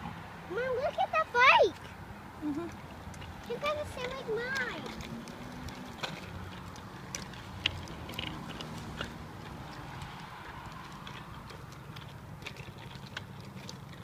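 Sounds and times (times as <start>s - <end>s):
bicycle rolling on concrete: 0.0s - 14.0s
bicycle clicks and knocks: 4.8s - 11.3s.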